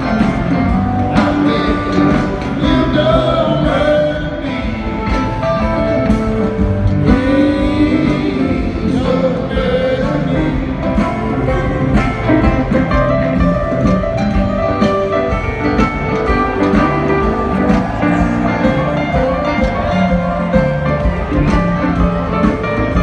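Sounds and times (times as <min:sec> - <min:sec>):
person singing: 0:00.0 - 0:05.4, 0:06.9 - 0:12.2
live rock band: 0:00.0 - 0:23.0.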